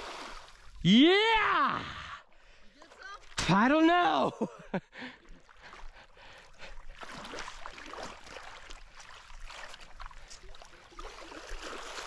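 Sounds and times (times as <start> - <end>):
net splashing in muddy water: 6.9 - 12.0.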